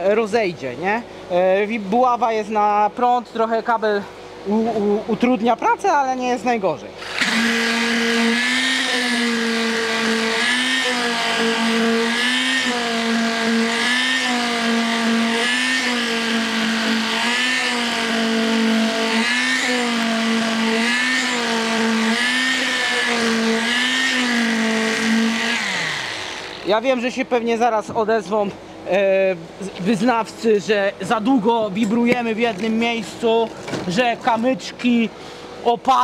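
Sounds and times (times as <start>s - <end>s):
concrete vibrator humming: 6.9s - 27.3s.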